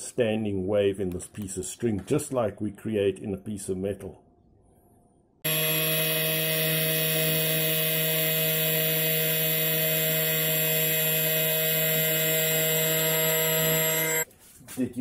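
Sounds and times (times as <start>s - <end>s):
electric sander buzzing: 5.5s - 14.3s.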